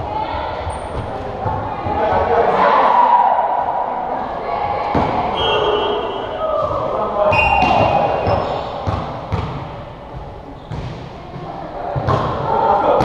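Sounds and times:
sneakers squeaking on gym floor: 0:00.6 - 0:01.7, 0:05.3 - 0:09.6, 0:10.2 - 0:11.4
players calling out: 0:00.6 - 0:09.2
volleyball thuds: 0:06.6 - 0:09.8.

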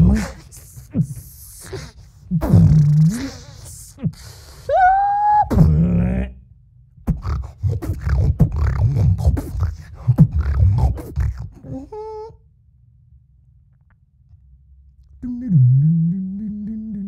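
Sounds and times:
person beatboxing: 0:00.0 - 0:04.5, 0:07.1 - 0:11.9, 0:15.2 - 0:17.0
mouth clicks: 0:07.1 - 0:11.8
held vocal note: 0:15.2 - 0:17.0.

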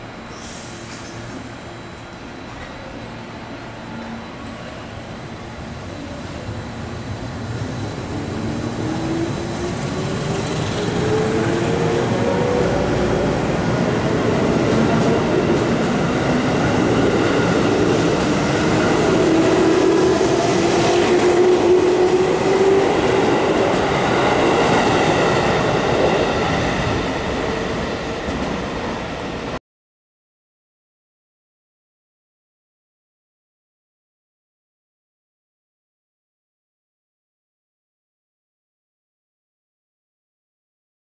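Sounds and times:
train wheels rumbling: 0:00.4 - 0:29.6.

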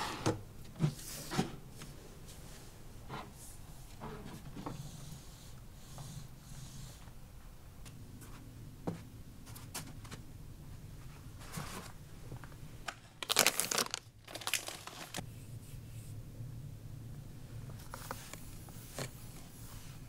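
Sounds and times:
plastic packs crinkling: 0:12.9 - 0:15.2.

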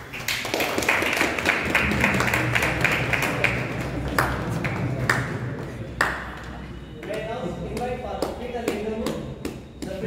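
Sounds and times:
crowd applauding: 0:00.0 - 0:08.8.

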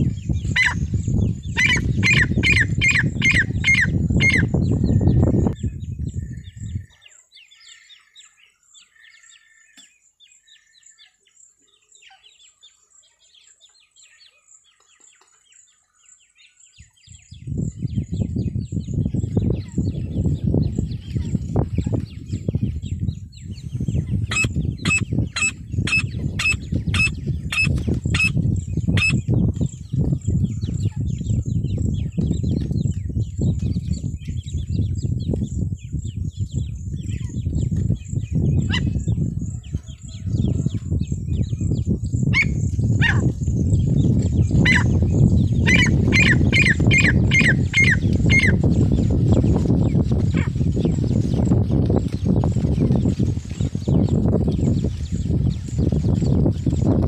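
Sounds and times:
francolin calling: 0:01.5 - 0:05.2, 0:45.6 - 0:48.6.

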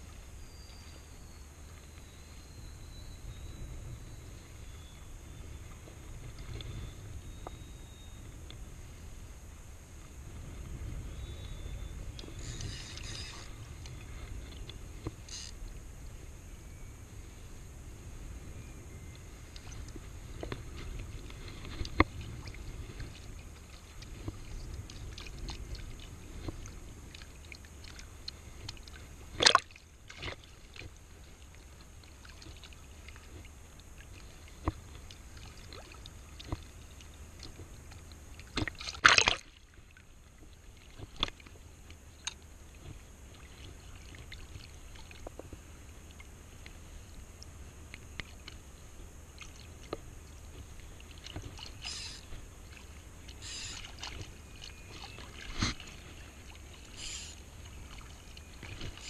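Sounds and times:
steady low rumble: 0:00.0 - 0:38.8
seawater sloshing and lapping: 0:19.3 - 0:59.0
water splashing: 0:19.6 - 0:45.4, 0:49.3 - 0:59.0.

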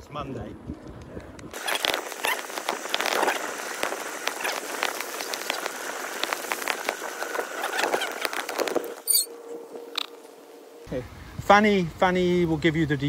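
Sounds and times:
bike rattles and clicks: 0:00.9 - 0:09.3
tyre hiss on bricks: 0:01.6 - 0:09.0.

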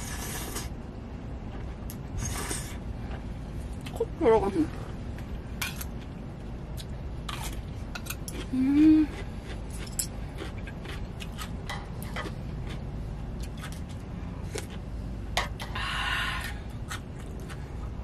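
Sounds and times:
crunchy chewing: 0:05.8 - 0:14.9
person humming: 0:08.5 - 0:09.2.

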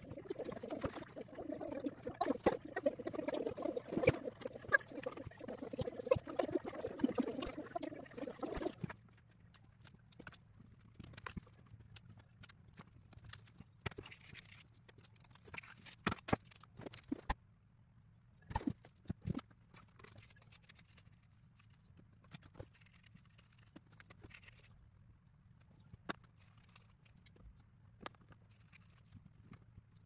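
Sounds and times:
paper rustle: 0:09.8 - 0:17.2, 0:19.0 - 0:24.8, 0:28.4 - 0:29.7.

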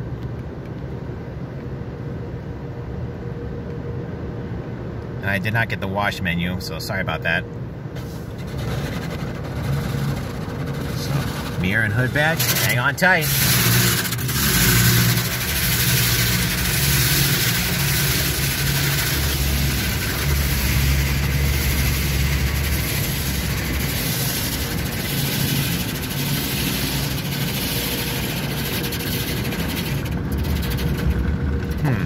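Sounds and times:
low steady hum: 0:00.0 - 0:32.0
water jets spraying on car: 0:08.0 - 0:31.8.

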